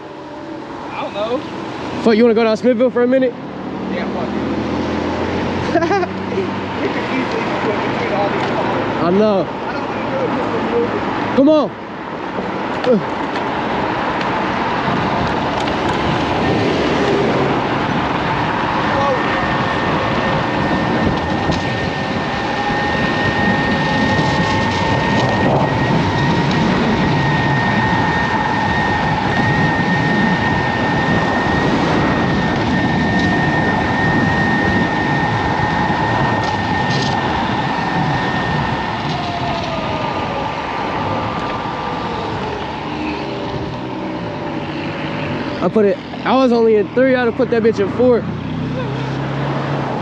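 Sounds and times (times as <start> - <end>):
wind rush on microphone: 0.0 - 50.0
electric motor whine: 12.2 - 50.0.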